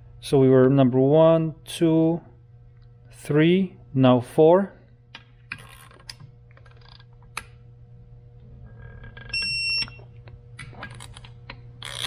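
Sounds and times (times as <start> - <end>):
torque wrench beep: 9.3 - 10.0.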